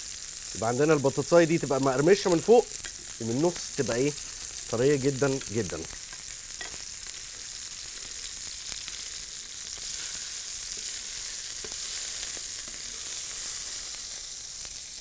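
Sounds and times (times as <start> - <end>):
oil sizzling in a frying pan: 0.0 - 15.0
metal utensil clicking on pan: 2.7 - 3.2, 5.3 - 6.8.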